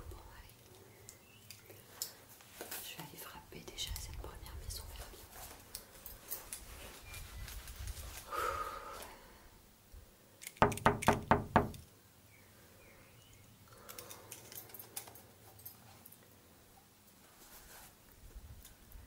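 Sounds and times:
knocking on a door: 10.6 - 11.8.

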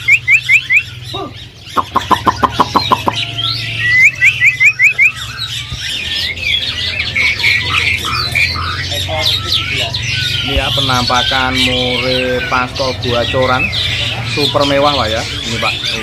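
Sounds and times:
rising whistled bird notes: 0.0 - 12.6
fast repeated bird notes: 0.0 - 16.0
songbirds calling and singing: 0.0 - 16.0.

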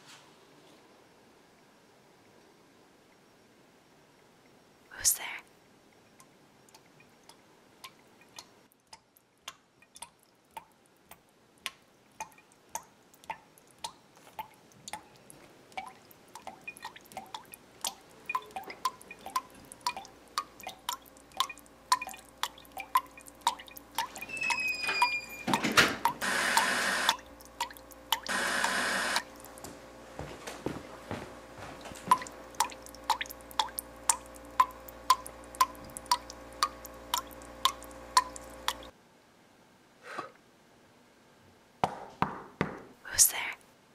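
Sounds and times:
water dripping with pings: 3.9 - 29.7, 31.5 - 38.9
loud hissing bursts: 28.3 - 29.2.

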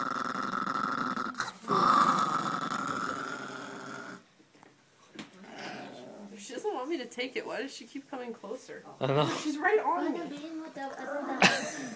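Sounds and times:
dog growling: 0.0 - 4.3, 5.4 - 6.4.

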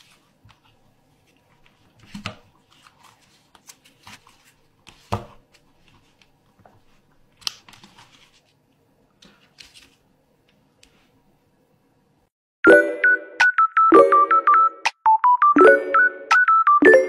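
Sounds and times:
paper folding rustles: 0.0 - 8.6, 9.2 - 10.1.

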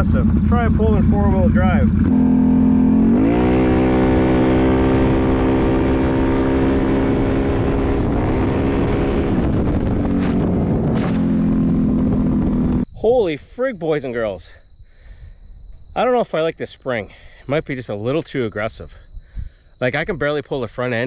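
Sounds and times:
atv engine revving at full throttle: 0.0 - 12.9.

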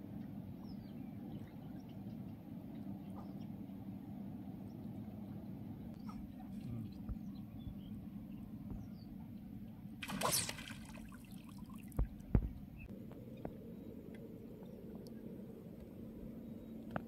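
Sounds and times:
low background rumble: 0.0 - 17.0
water splash: 10.0 - 12.1.

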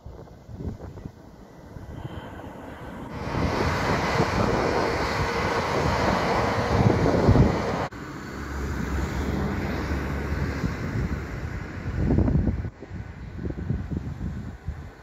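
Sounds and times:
wind on microphone: 0.0 - 7.9, 9.4 - 15.0
train wheels rushing on rails: 0.8 - 7.9.

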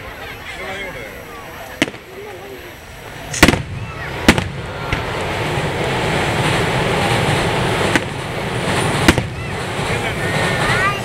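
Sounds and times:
rumbling hiss: 0.0 - 11.0
firework shell bang: 3.3 - 5.2, 7.8 - 9.6.

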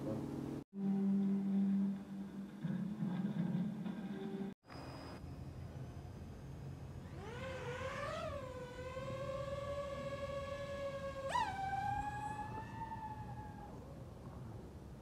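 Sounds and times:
drone motors whining: 5.8 - 14.1.

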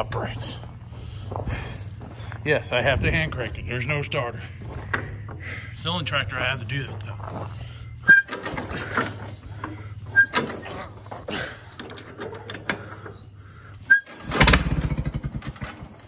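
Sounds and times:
tractor engine rumbling burst: 0.0 - 16.0
crank squeaking clicks: 8.0 - 15.0.

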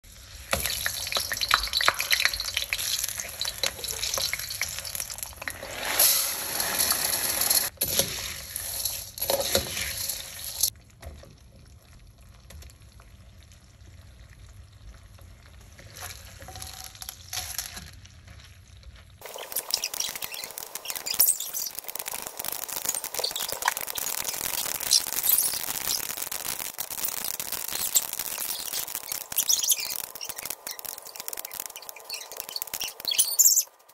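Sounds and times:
hot oil sizzling in a wok: 0.1 - 11.1, 19.2 - 33.6
popcorn kernels popping: 0.3 - 10.7, 15.9 - 18.0, 19.2 - 33.9.

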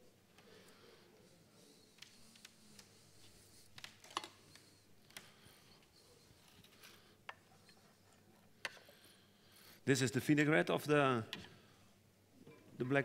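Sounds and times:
faint clicks and taps on steel: 6.5 - 7.8, 8.6 - 9.0.

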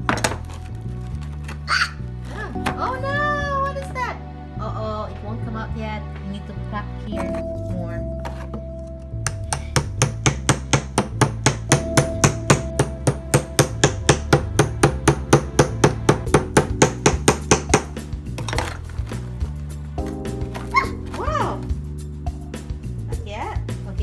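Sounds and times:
mallet tapping a chisel: 9.2 - 18.0.

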